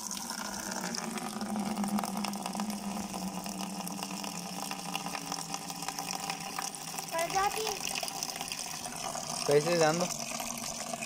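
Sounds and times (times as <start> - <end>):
tap water filling bucket: 0.0 - 11.0.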